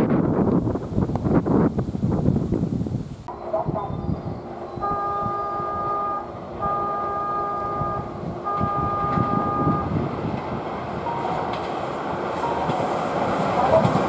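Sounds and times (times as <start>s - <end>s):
steady low rumble: 0.0s - 14.0s
train warning signal toots: 3.3s - 11.8s, 12.4s - 14.0s.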